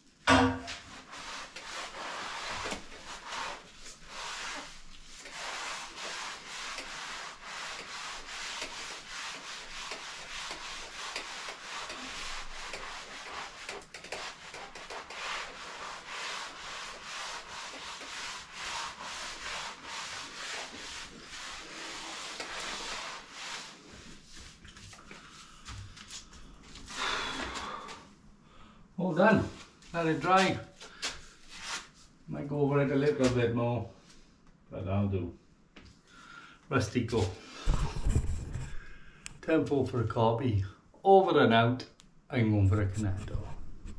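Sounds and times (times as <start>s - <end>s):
float scraping wet render: 0.7s - 24.8s.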